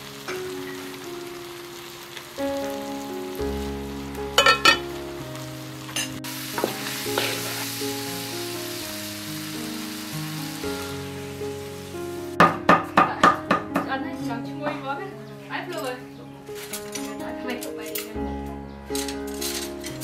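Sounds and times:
corn sizzling in a pan: 0:00.0 - 0:12.4
slow background music: 0:00.0 - 0:20.0
spatula turning food: 0:06.5 - 0:08.0.

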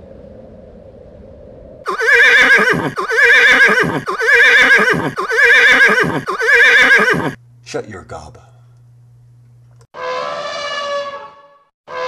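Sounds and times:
pony whinnying: 0:01.9 - 0:07.4.

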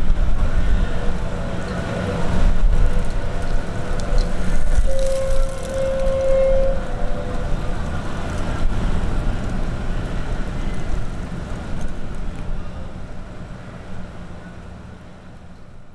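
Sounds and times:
vehicle rumble: 0:00.0 - 0:15.9.

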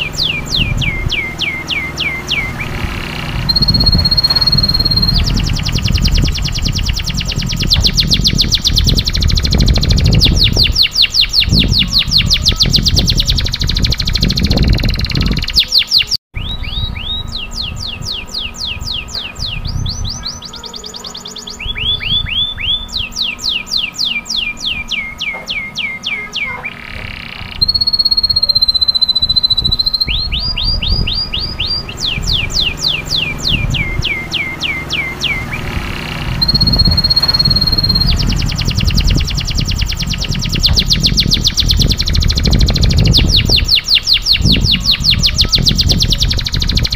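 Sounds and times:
canary trilling: 0:00.0 - 0:46.9
short held whistle: 0:03.4 - 0:05.3, 0:27.6 - 0:31.3, 0:36.4 - 0:38.2.

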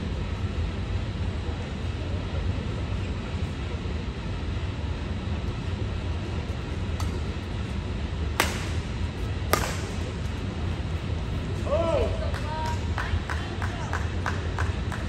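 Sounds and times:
steady low hum and hiss: 0:00.0 - 0:15.0
badminton racket hitting shuttlecock: 0:08.4 - 0:08.8, 0:09.5 - 0:10.0.

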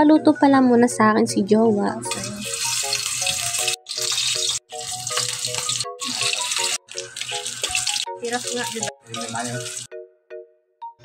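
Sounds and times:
light background music: 0:00.0 - 0:11.0
sausage sizzling in hot oil: 0:02.1 - 0:09.9.

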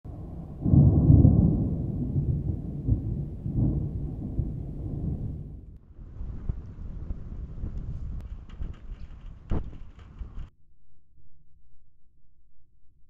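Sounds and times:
thunder rumbling: 0:00.1 - 0:10.5.

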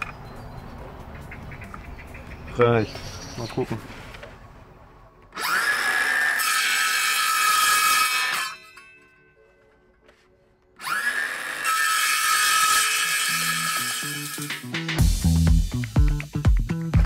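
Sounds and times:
circular saw cutting metal: 0:05.4 - 0:08.8, 0:10.8 - 0:14.7.

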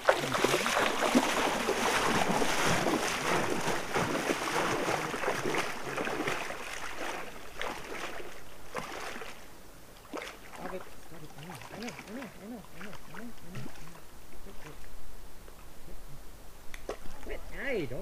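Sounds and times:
water splashing as person wades: 0:00.0 - 0:14.0.

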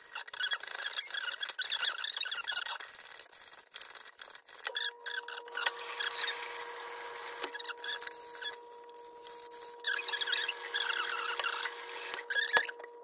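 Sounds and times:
steady hum: 0:04.8 - 0:13.0
skin squeaking on wet cup: 0:09.8 - 0:12.9.

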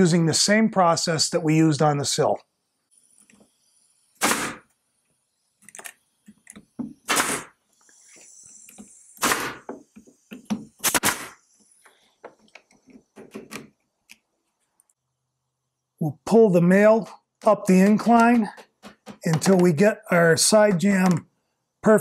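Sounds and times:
pneumatic nailer firing: 0:04.2 - 0:04.7, 0:06.9 - 0:07.6, 0:08.5 - 0:11.6.

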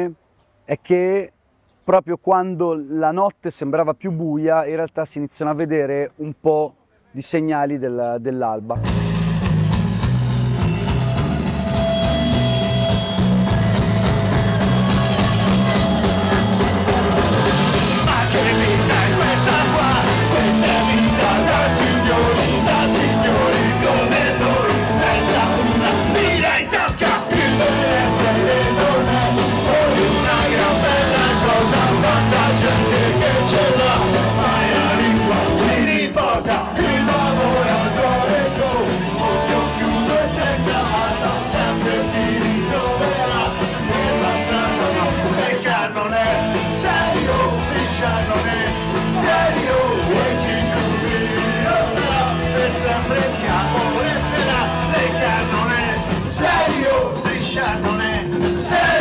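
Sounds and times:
live ska-punk band: 0:08.8 - 0:59.0
person singing: 0:17.9 - 0:59.0.

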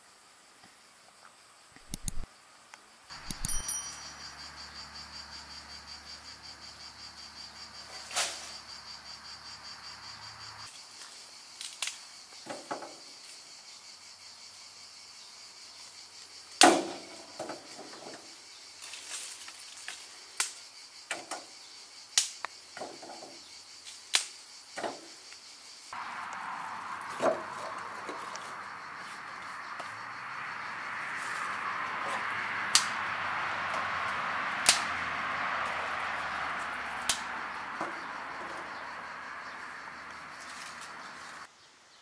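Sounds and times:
crickets chirring: 0:00.0 - 0:41.6
firewood sticks snapping: 0:11.6 - 0:12.0, 0:24.1 - 0:24.3, 0:34.6 - 0:34.9, 0:37.0 - 0:37.3.

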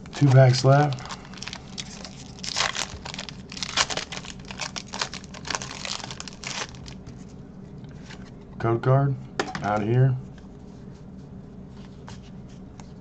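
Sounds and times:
foil wrapper crinkling and tearing: 0:00.0 - 0:07.1.

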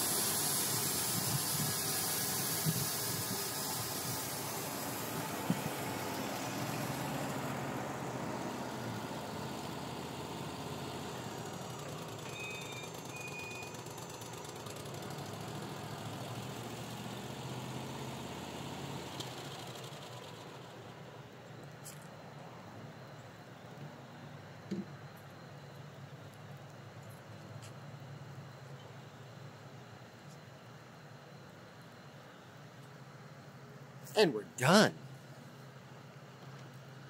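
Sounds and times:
sawmill engine running: 0:00.0 - 0:07.9.

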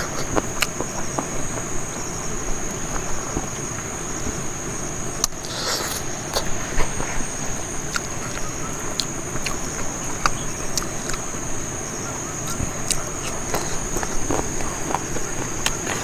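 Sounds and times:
person chewing food: 0:00.0 - 0:03.8, 0:07.8 - 0:11.3, 0:12.4 - 0:16.0
insects droning: 0:00.0 - 0:16.0.

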